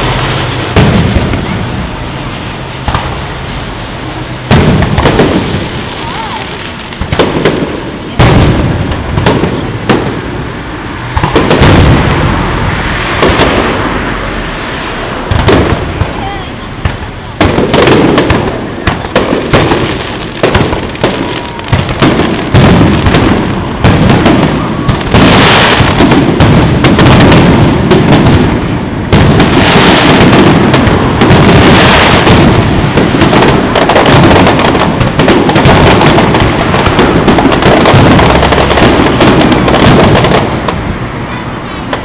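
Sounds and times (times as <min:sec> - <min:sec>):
firework crackling: 0:00.0 - 0:42.0
firework shells bursting: 0:11.1 - 0:42.0.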